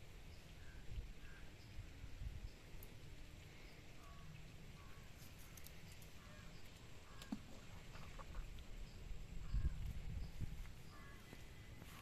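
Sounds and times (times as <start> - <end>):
wind rumble on microphone: 0.0 - 2.7, 8.3 - 11.2.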